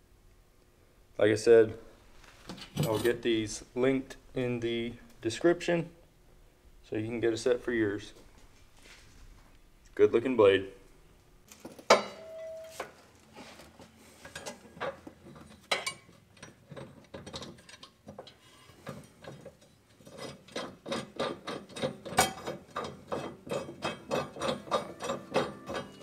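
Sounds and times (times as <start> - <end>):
ringing metal clank: 11.9 - 12.8, 23.8 - 26.0.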